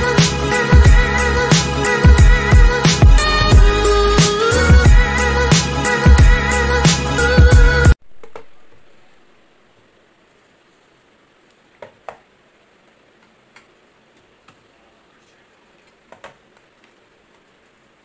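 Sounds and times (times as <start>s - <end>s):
intro music: 0.0s - 8.0s.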